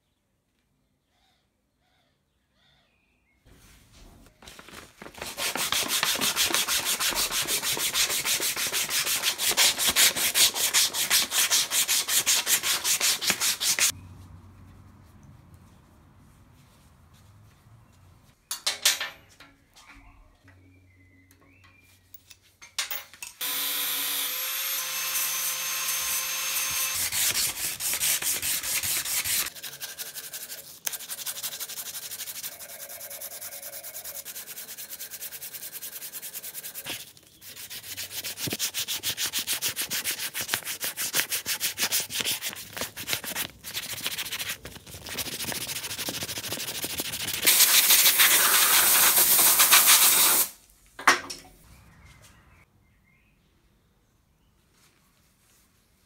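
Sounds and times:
wooden handle being sanded: 0:05.2 - 0:13.9, 0:24.4 - 0:50.3.

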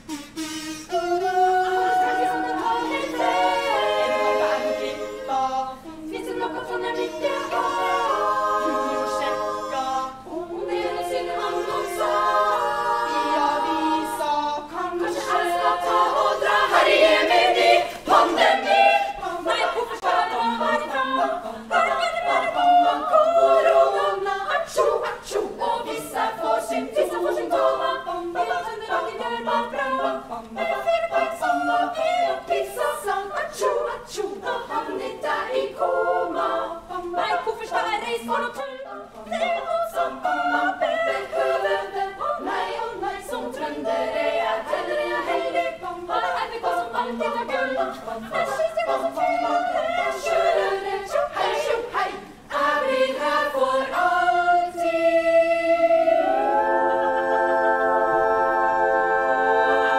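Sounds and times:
women's choir singing a cappella: 0:00.7 - 0:59.9.

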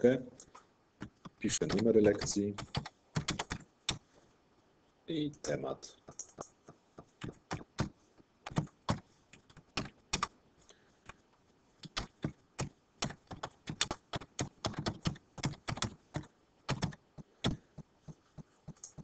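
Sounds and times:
typing on computer keyboard: 0:01.6 - 0:04.0, 0:06.0 - 0:10.3, 0:11.8 - 0:19.0.

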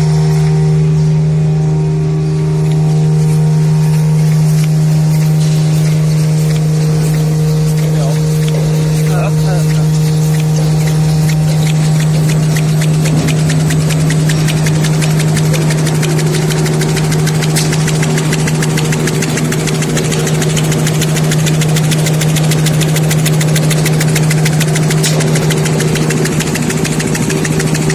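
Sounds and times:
folding machine hum and clatter: 0:00.0 - 0:27.9.

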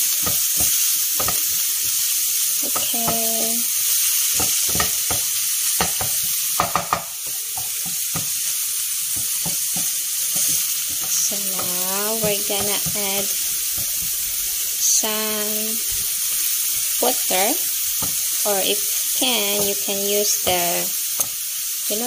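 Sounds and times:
meat sizzling in oil: 0:00.0 - 0:22.0
wooden spatula scraping a pan: 0:05.9 - 0:14.3.

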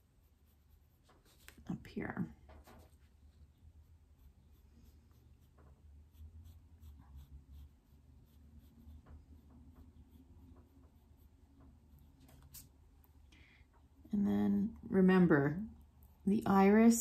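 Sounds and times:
pencil scratching on paper: 0:00.0 - 0:12.7.

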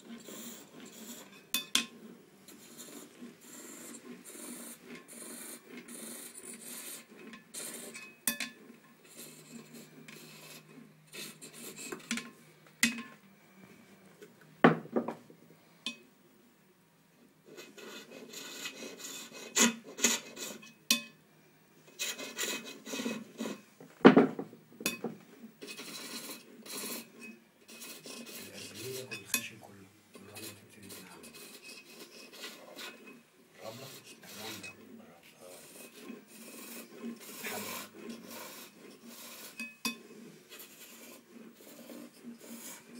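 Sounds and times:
chisel scraping turning wood: 0:00.0 - 0:12.3, 0:17.5 - 0:20.8, 0:21.9 - 0:23.6, 0:24.2 - 0:42.9
sharp wooden knocks: 0:24.0 - 0:24.6.

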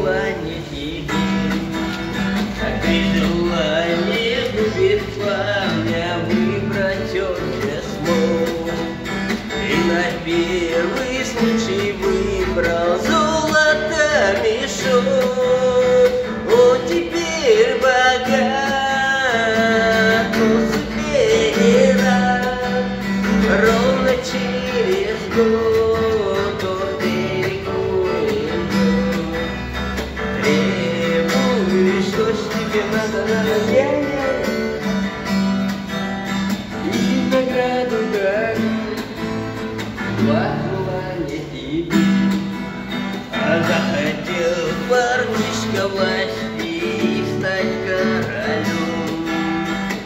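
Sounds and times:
person singing: 0:00.0 - 0:34.9
acoustic guitar strumming: 0:00.0 - 0:50.0.

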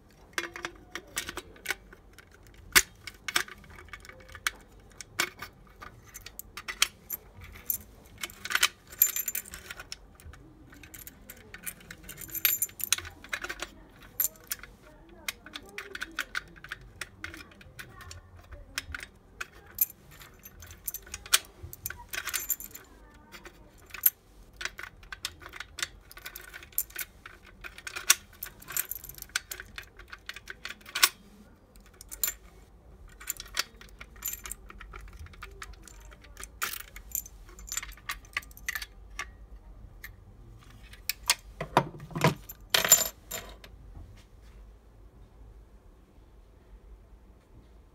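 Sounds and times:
keys jingling: 0:00.4 - 0:14.8, 0:18.8 - 0:31.2, 0:31.8 - 0:39.0, 0:40.6 - 0:43.7
key clicking in lock: 0:23.8 - 0:31.2
lock knocking on wooden table: 0:41.6 - 0:42.4.

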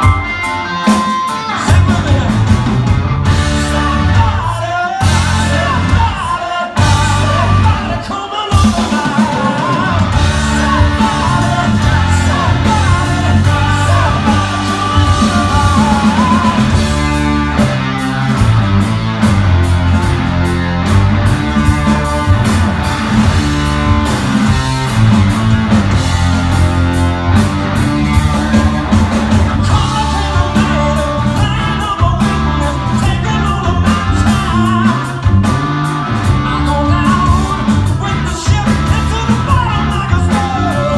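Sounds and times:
drums: 0:00.0 - 0:40.9
electric guitars: 0:00.0 - 0:40.9
man singing: 0:01.4 - 0:02.7, 0:03.4 - 0:18.4, 0:28.3 - 0:35.6, 0:36.2 - 0:40.9.

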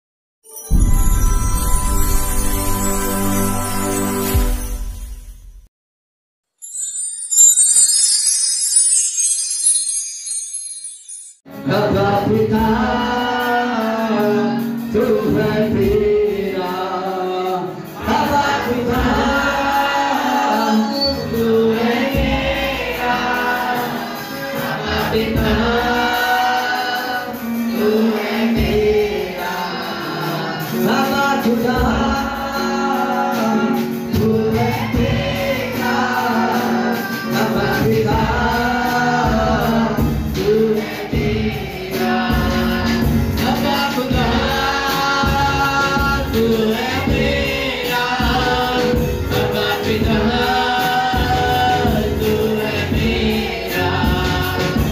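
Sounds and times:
instrumental accompaniment: 0:00.4 - 0:05.4, 0:06.6 - 0:11.9
group singing worship song: 0:11.8 - 0:54.9.

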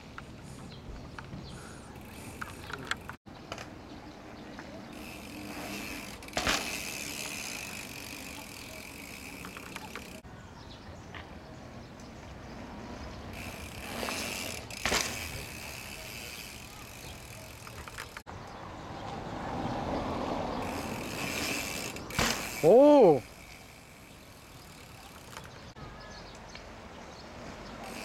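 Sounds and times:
bike rolling over brick paving: 0:04.5 - 0:10.2, 0:13.2 - 0:18.3, 0:20.5 - 0:25.7
freewheel buzzing: 0:04.9 - 0:10.2, 0:13.2 - 0:18.3, 0:20.5 - 0:25.7, 0:27.8 - 0:28.0
sharp clatter: 0:20.8 - 0:22.6.

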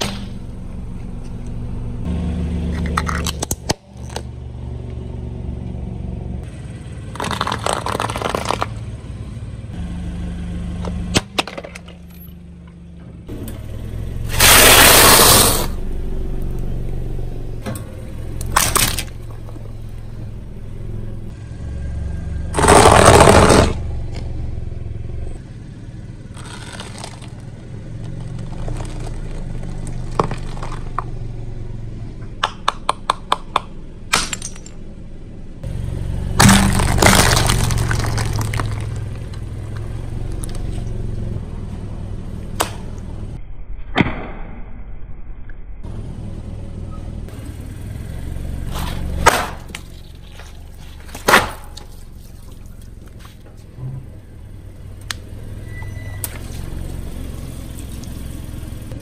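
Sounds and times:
objects crushed by car tyre: 0:07.1 - 0:08.8, 0:14.3 - 0:15.8, 0:18.4 - 0:19.7, 0:22.6 - 0:23.8, 0:26.3 - 0:31.1, 0:36.4 - 0:40.6, 0:48.7 - 0:53.4
loud breaking crash: 0:22.6 - 0:23.8, 0:36.4 - 0:39.0.

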